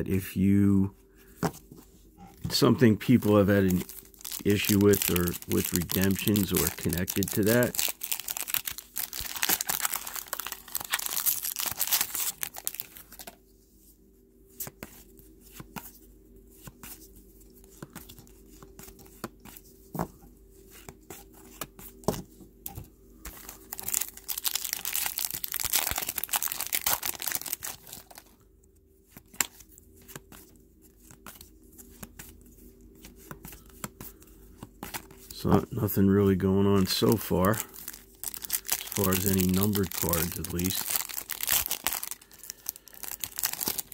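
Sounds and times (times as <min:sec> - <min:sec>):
foil wrapper tearing and crinkling: 0:03.0 - 0:13.3, 0:23.6 - 0:28.3, 0:36.8 - 0:43.9.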